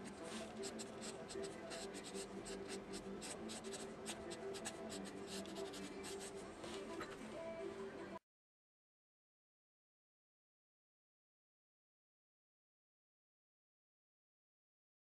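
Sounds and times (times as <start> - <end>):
pen scratching on paper: 0.0 - 6.4.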